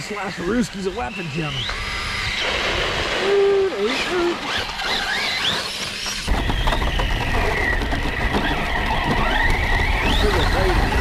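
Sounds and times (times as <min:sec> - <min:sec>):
toy truck motor whining: 0:00.3 - 0:11.0
rumble with small knocks: 0:04.6 - 0:11.0.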